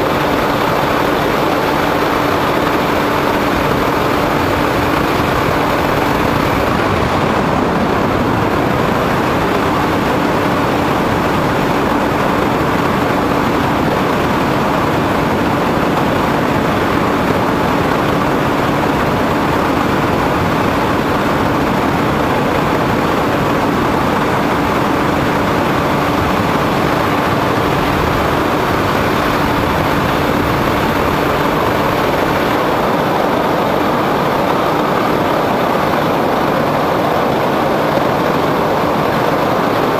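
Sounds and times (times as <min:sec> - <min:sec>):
motor and propeller noise: 0:00.0 - 0:39.9
wind rushing: 0:03.9 - 0:11.1, 0:24.9 - 0:33.1.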